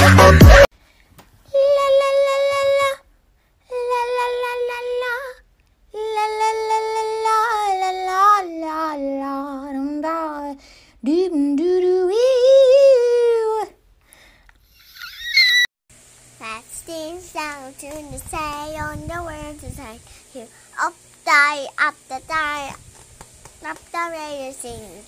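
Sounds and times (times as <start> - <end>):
high voice singing long notes: 1.5 - 13.8.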